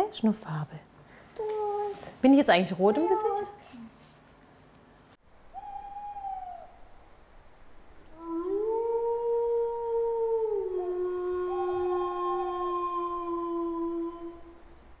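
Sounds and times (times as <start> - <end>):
higher wolf howl: 5.5 - 7.0, 8.0 - 14.8
wolf howling: 5.6 - 7.0, 8.0 - 14.8.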